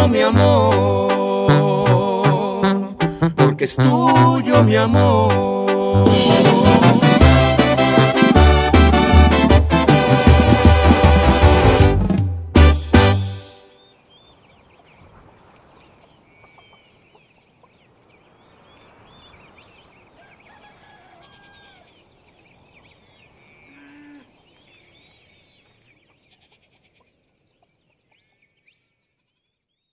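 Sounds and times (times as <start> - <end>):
small birds chirping: 13.7 - 29.9
farm animal call: 20.1 - 22.0, 23.7 - 24.4.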